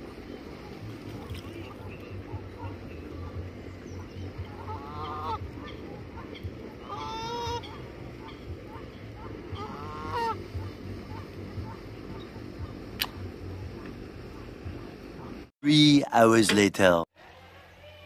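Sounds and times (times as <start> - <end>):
goose honking: 1.1 - 12.9.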